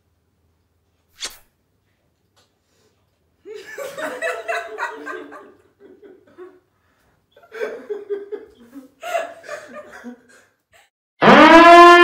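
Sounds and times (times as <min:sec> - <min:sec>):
woman laughing: 0:07.4 - 0:10.9.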